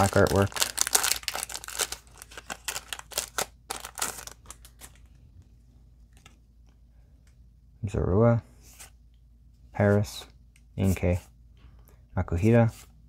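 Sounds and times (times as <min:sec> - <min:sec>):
foil wrapper crinkling: 0:00.0 - 0:05.1.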